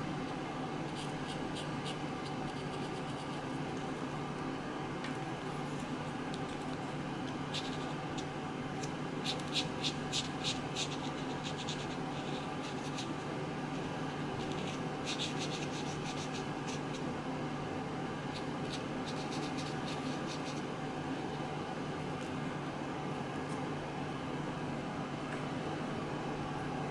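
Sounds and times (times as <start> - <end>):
steady low hum: 0.0 - 26.9
marker scratching on paper: 0.9 - 3.4, 7.5 - 7.9, 9.2 - 13.2, 14.4 - 17.0, 18.3 - 20.6.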